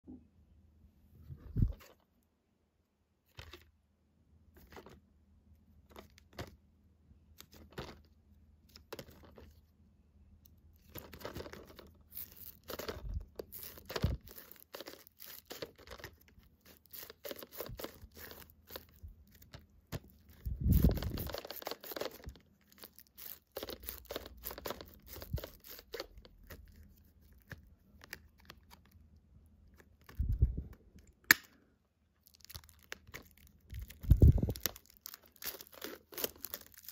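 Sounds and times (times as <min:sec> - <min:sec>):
plastic shrink-wrap crinkling: 0:10.8 - 0:29.0, 0:32.2 - 0:36.9.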